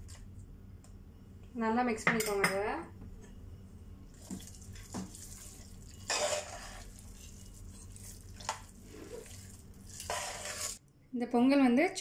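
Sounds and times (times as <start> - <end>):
spoon scraping wet food: 4.1 - 10.8.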